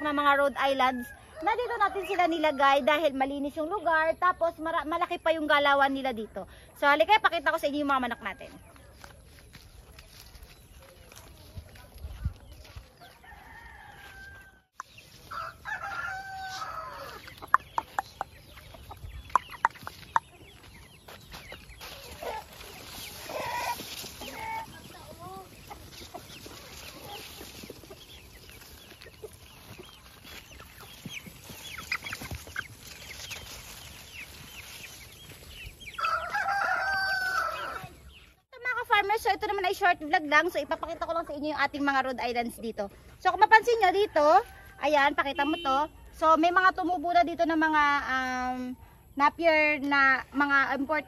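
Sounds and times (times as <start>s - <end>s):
chickens clucking: 7.0s - 38.4s, 39.0s - 51.0s
rooster crowing: 13.0s - 17.3s, 36.0s - 38.0s.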